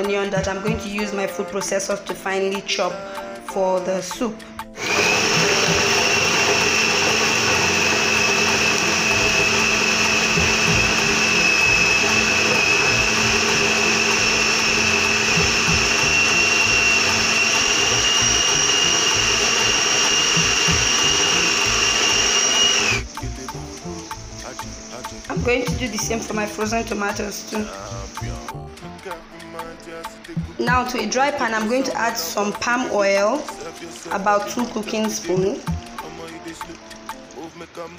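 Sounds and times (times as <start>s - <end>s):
food processor motor whine: 4.8s - 23.2s.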